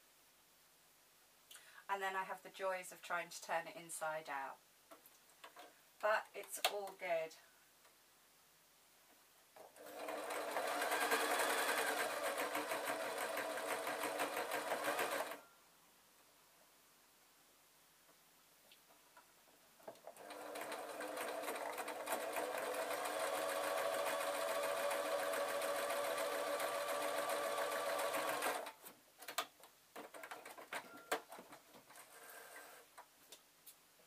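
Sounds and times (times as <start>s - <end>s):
sewing machine stitching: 9.6s - 15.4s, 20.0s - 28.8s.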